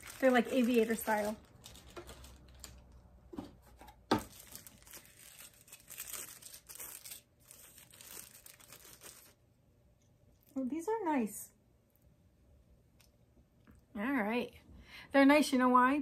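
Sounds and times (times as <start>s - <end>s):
wrapping rustling: 0.0s - 9.4s.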